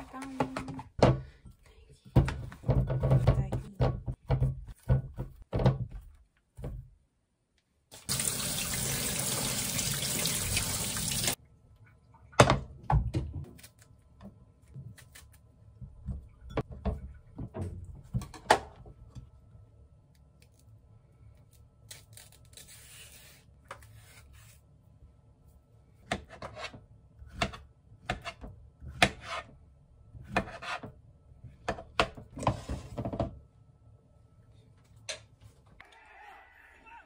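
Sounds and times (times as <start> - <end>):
banana peeling and handling: 13.4 - 15.6, 20.1 - 24.7.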